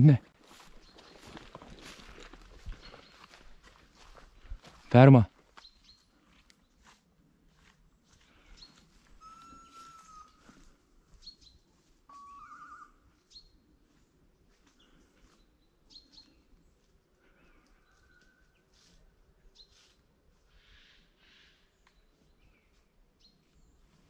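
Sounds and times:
small birds chirping: 0.4s - 7.1s, 8.0s - 24.0s
bird whistled tones: 9.2s - 10.5s, 12.1s - 13.0s.

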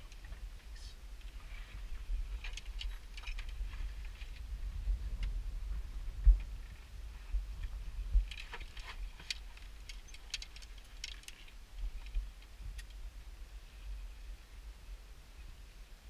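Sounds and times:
low rumble: 0.0s - 15.1s
equipment clicking and clinking: 2.3s - 4.4s, 8.1s - 12.2s.

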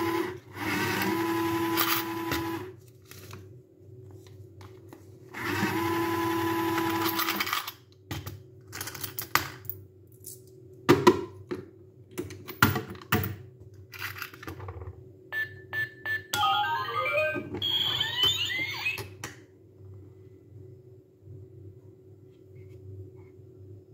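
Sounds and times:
electronic tune of rising notes: 16.4s - 19.0s.

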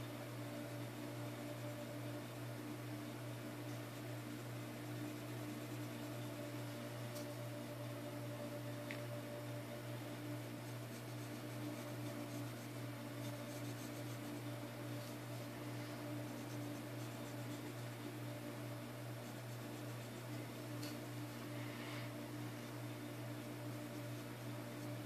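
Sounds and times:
low electrical hum: 0.0s - 25.0s
pencil scratching on paper: 3.9s - 6.4s, 10.4s - 15.5s, 16.2s - 18.0s, 19.2s - 21.4s, 23.4s - 25.0s.

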